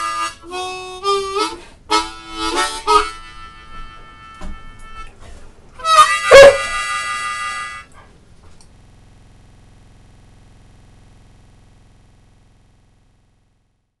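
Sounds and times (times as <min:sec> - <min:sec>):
blues harmonica chord: 0:00.0 - 0:08.0
faint low hum: 0:00.0 - 0:14.0.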